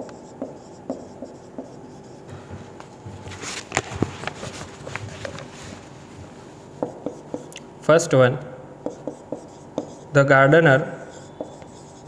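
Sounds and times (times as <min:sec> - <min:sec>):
marker writing on whiteboard: 0:00.0 - 0:03.2, 0:06.7 - 0:07.6, 0:08.8 - 0:10.2, 0:10.9 - 0:12.0.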